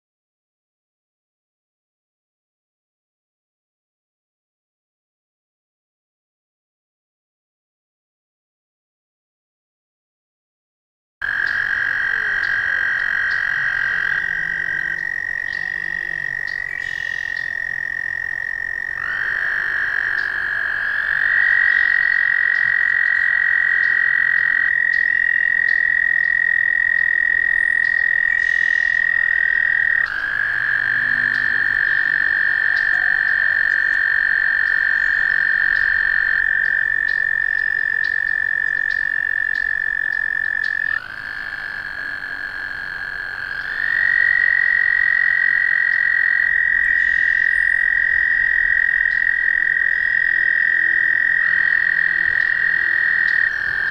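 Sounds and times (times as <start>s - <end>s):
toads trilling: 11.2s - 53.9s.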